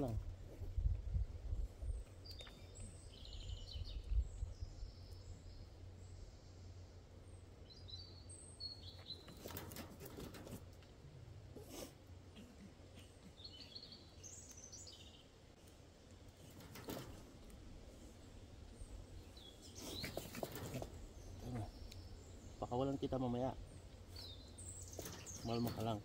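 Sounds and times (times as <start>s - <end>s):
small birds chirping: 0.0s - 11.0s, 11.6s - 26.0s
rustling and scraping: 8.9s - 13.3s, 15.5s - 22.2s, 23.8s - 26.0s.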